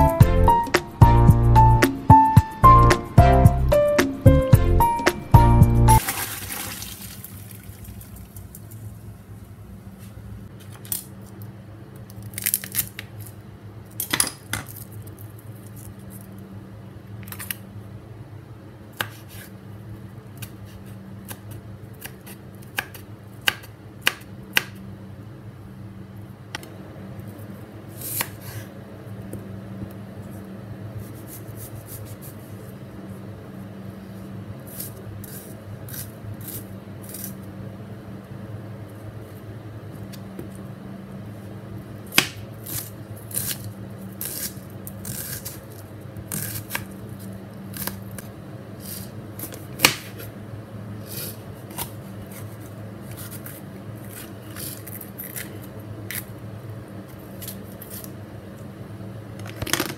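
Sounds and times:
steady low hum: 0.0s - 6.0s.

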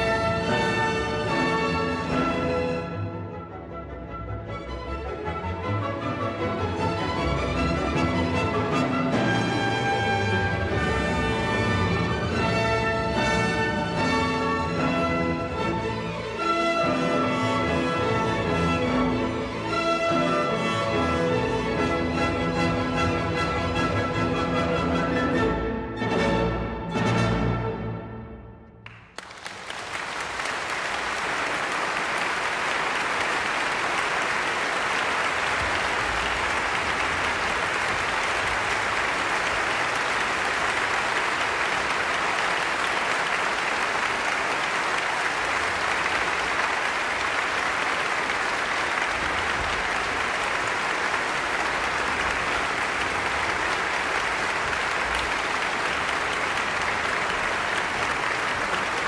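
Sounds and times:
audience applauding: 28.8s - 59.0s.

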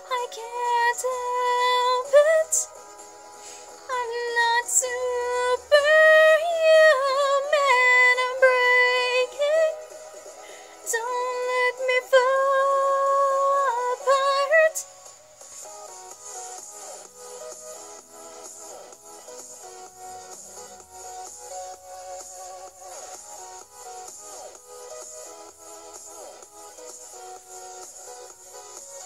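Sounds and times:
young woman singing wordless melody: 0.0s - 2.8s, 3.9s - 9.9s, 10.8s - 14.9s.

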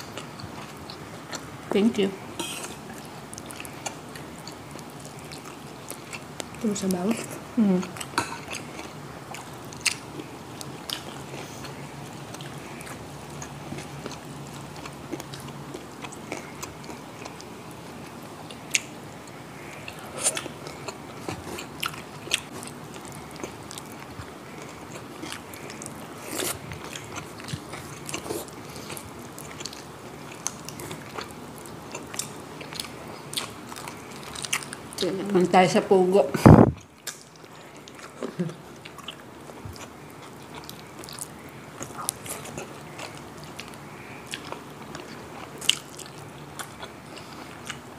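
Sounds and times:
crunchy chewing: 2.3s - 6.6s, 7.2s - 35.1s, 36.8s - 47.9s.

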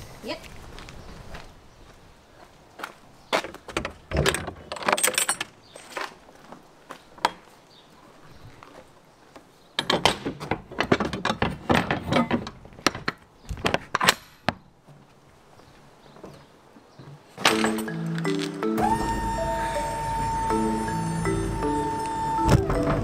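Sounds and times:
metal latches clacking and rattling: 3.8s - 5.6s, 9.8s - 14.4s.

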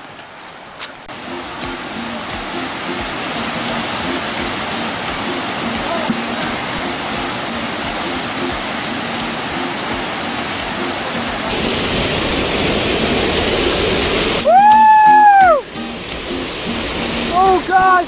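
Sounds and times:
waterfall rushing: 1.0s - 18.0s
loud high held call: 14.4s - 15.7s.

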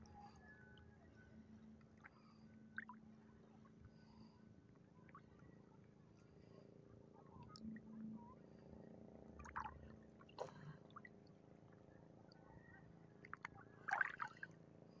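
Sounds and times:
faint steady hum: 0.0s - 15.0s
small water splashes: 9.4s - 11.0s, 13.2s - 14.6s.

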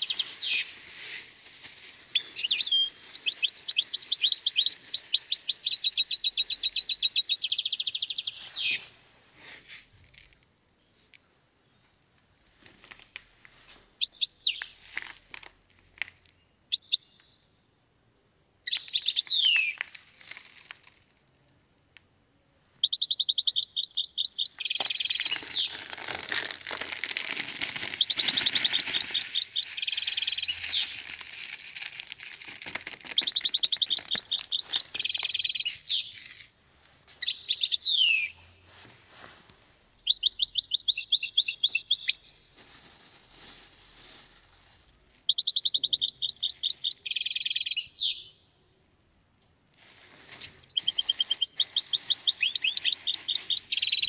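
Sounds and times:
goldfinch singing: 0.0s - 0.7s, 2.2s - 8.8s, 22.8s - 25.7s, 28.0s - 31.0s, 33.2s - 36.1s, 37.2s - 38.4s, 40.0s - 42.6s, 45.3s - 48.3s, 50.6s - 54.0s.

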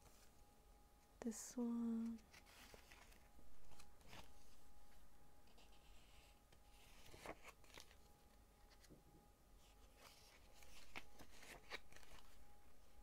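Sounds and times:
paper pages rustling: 2.0s - 9.0s, 9.6s - 13.0s.

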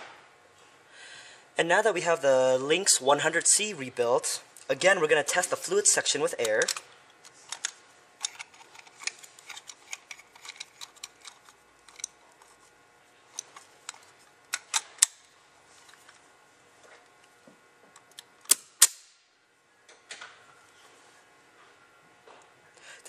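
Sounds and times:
loud sharp clicks: 18.4s - 19.2s.

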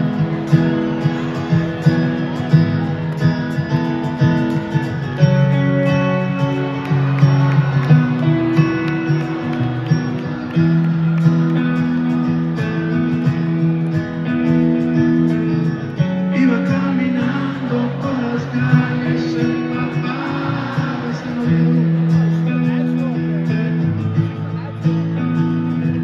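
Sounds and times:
strummed acoustic guitars: 0.0s - 26.0s
person singing: 16.0s - 23.7s.

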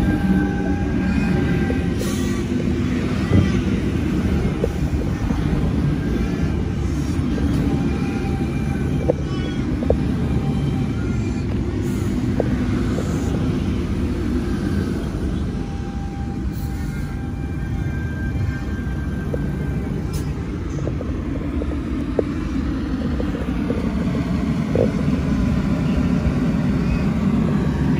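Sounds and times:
electric train rumbling: 0.0s - 27.9s
whining traction tones: 0.0s - 27.9s
wheels clicking over rail joints: 3.0s - 14.0s.

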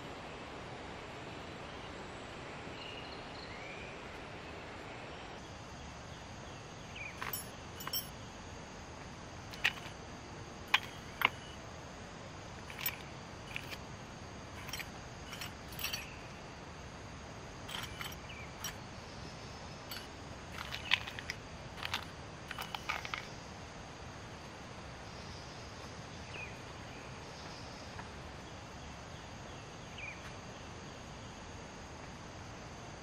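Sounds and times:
small metal tools clinking: 7.1s - 8.2s, 9.5s - 10.0s, 10.6s - 11.6s, 12.6s - 13.9s, 14.5s - 16.3s, 17.7s - 18.8s, 19.9s - 23.3s.

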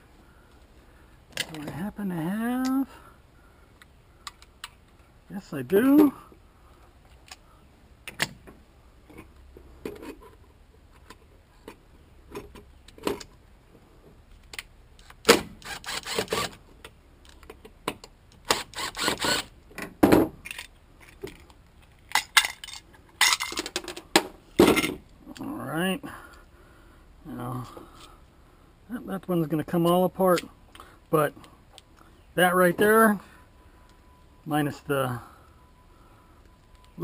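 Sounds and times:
cordless drill-driver: 15.6s - 16.6s, 18.5s - 19.5s
metal parts and tools clinking: 20.4s - 24.0s.

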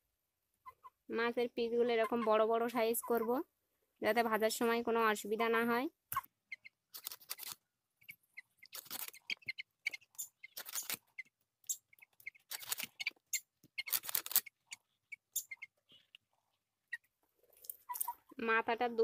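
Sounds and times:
small clicks: 6.9s - 7.6s, 8.6s - 11.0s, 11.7s - 14.6s.

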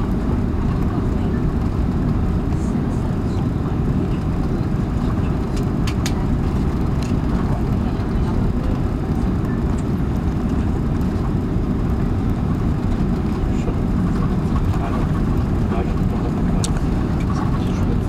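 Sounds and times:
aircraft cabin low rumble: 0.0s - 18.0s.

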